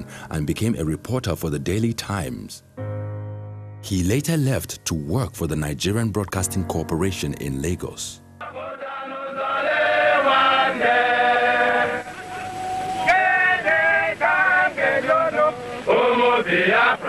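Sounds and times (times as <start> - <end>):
group singing chant in unison: 8.4 - 17.0.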